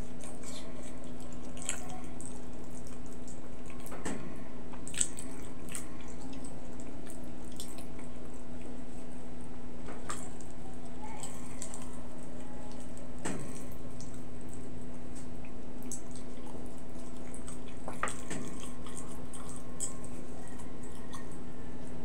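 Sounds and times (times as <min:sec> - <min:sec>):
steady low hum: 0:00.0 - 0:22.0
wet chewing mouth smacks: 0:12.8 - 0:21.4.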